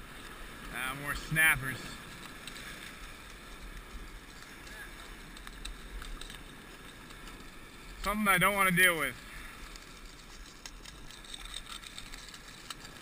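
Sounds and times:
ocean surf over rocks: 0:00.0 - 0:13.0
faint clicks: 0:02.0 - 0:08.2.

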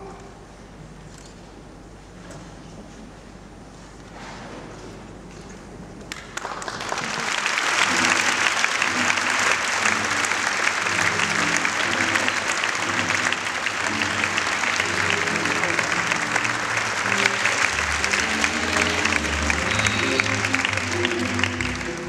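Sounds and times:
audience applauding: 0:06.1 - 0:22.0.

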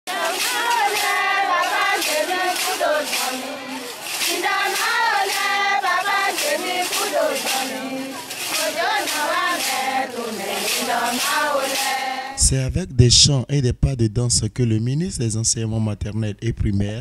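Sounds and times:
women singing in unison: 0:00.1 - 0:12.4.

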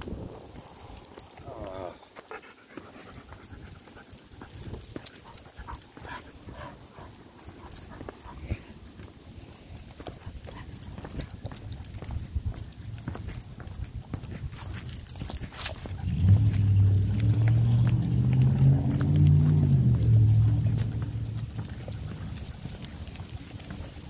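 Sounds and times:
footsteps: 0:02.1 - 0:24.0
dog panting: 0:02.2 - 0:24.0.

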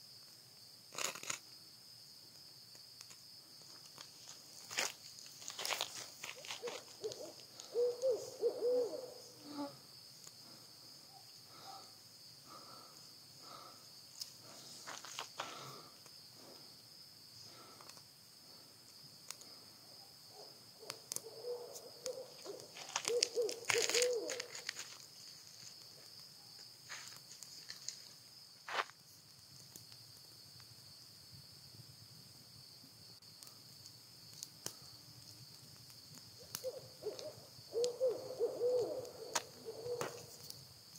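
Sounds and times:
kindling crackling: 0:00.2 - 0:01.5, 0:02.2 - 0:16.9, 0:17.5 - 0:30.8, 0:33.2 - 0:38.0
owl hooting: 0:06.4 - 0:09.8, 0:20.8 - 0:24.6, 0:36.4 - 0:40.4.

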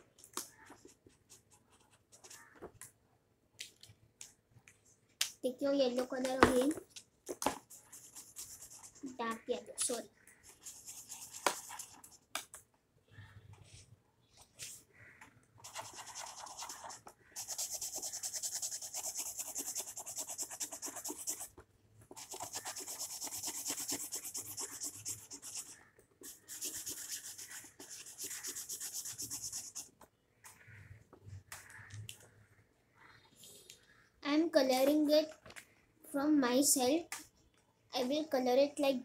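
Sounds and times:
crayon scribbling on paper: 0:07.6 - 0:12.3, 0:15.6 - 0:29.9.

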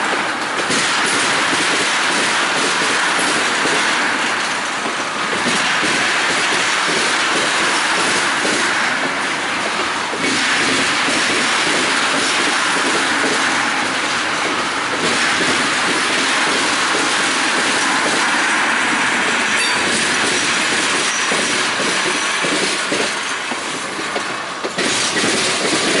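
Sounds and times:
train wheels clacking on rails: 0:00.0 - 0:26.0
high wheel squeal: 0:18.3 - 0:23.8.

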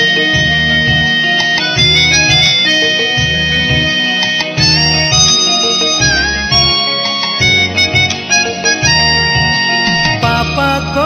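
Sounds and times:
repeating low bass note: 0:00.0 - 0:01.2, 0:01.8 - 0:05.4
held melody notes: 0:00.0 - 0:11.0.

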